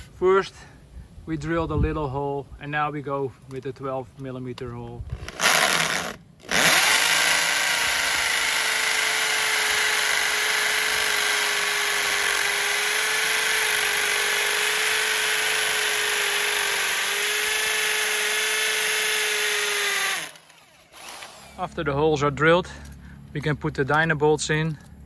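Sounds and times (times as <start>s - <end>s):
electric drill boring masonry: 5.1s - 21.7s.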